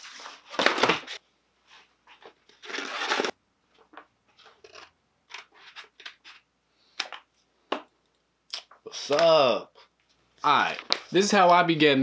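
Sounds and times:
paper rustling: 0.0 - 6.4.

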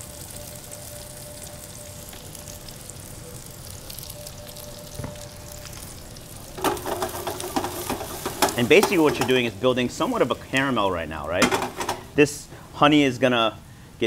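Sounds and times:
mushrooms sizzling in a skillet: 0.0 - 12.2
metal pan clatter: 6.6 - 9.6, 11.4 - 12.2.

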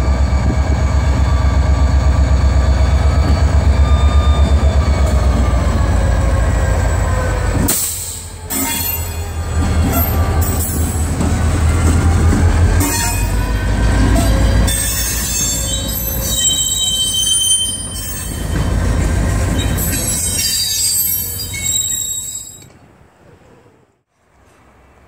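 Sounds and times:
diesel locomotive engine rumbling: 0.0 - 25.0
freight cars rolling: 2.0 - 23.2
wheel squeal: 12.8 - 18.7, 19.4 - 22.8.

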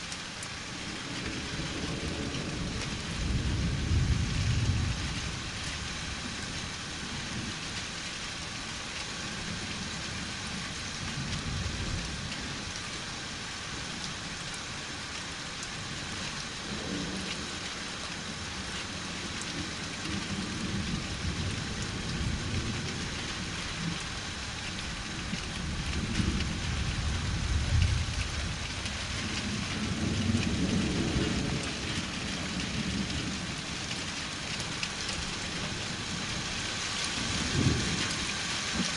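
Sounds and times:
rainfall hissing: 0.0 - 38.9
distant thunder rumbling: 25.1 - 34.0.

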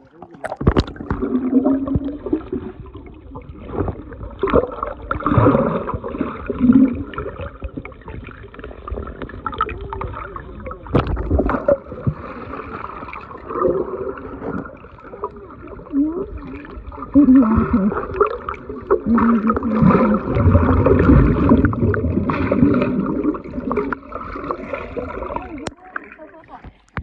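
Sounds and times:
underwater bubbles gurgling: 0.0 - 27.0
sharp underwater knocks: 0.3 - 2.4, 10.9 - 12.2.

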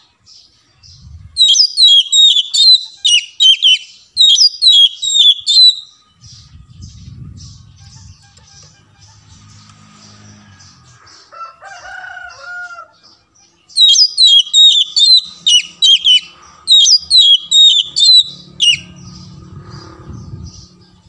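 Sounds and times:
bird whistling descending notes: 1.4 - 6.3, 13.8 - 18.9.

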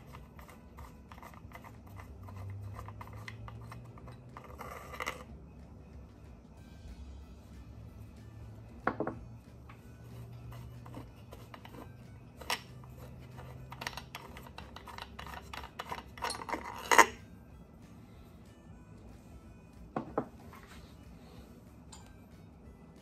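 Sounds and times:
metal clinks knocks and scraping: 10.9 - 17.2.

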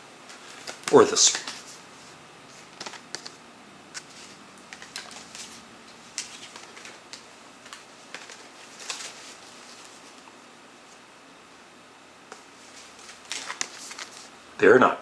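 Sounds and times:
cd cases clicking and rustling: 0.3 - 1.7, 2.6 - 10.2, 12.3 - 14.3.

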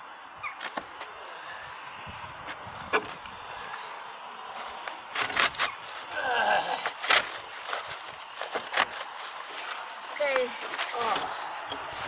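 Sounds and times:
roofing material clicks and scrapes: 6.9 - 12.0.

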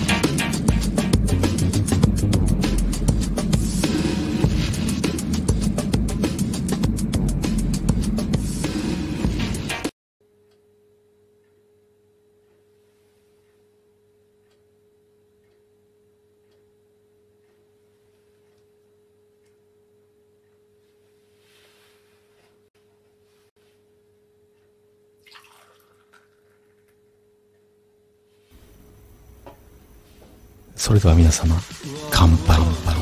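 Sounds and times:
faint steady hum: 10.2 - 33.0.

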